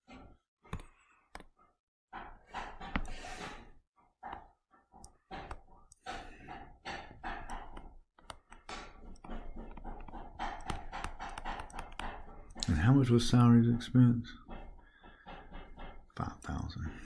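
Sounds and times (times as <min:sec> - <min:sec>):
soft breathing and sighs: 0:00.2 - 0:04.9, 0:05.5 - 0:07.6, 0:14.3 - 0:17.0
stylus tapping on a touchscreen: 0:05.0 - 0:13.4.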